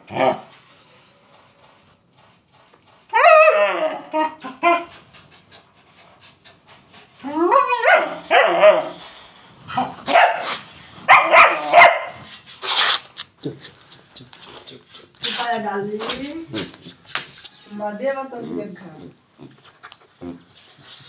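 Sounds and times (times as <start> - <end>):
dog barking: 7.6 - 8.9, 10.1 - 12.2.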